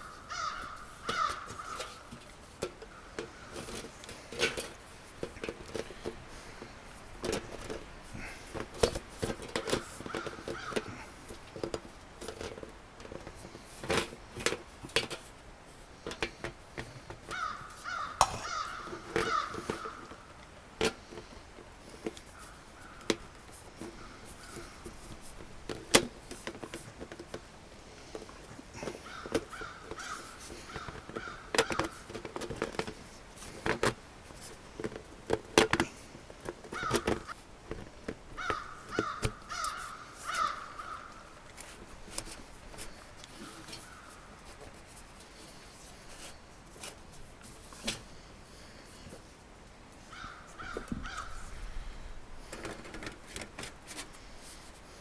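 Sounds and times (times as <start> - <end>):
crows cawing: 0.0 - 2.1, 10.0 - 11.1, 17.3 - 20.2, 22.4 - 23.2, 28.8 - 32.0, 36.7 - 37.4, 38.4 - 41.3, 43.4 - 44.3, 50.1 - 52.0.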